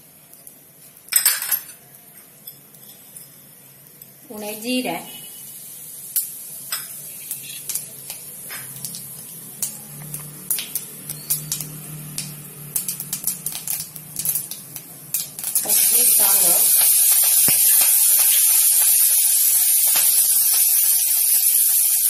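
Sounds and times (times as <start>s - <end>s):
seeds sizzling in hot oil: 1.8s - 22.0s
crackling pops: 7.2s - 22.0s.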